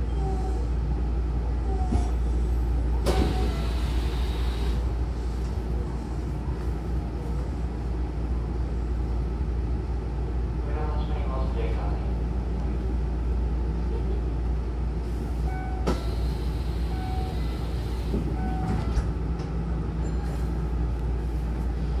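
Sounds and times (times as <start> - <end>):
train hum: 0.0 - 22.0
train doors closing thump: 3.0 - 4.1, 15.8 - 16.1.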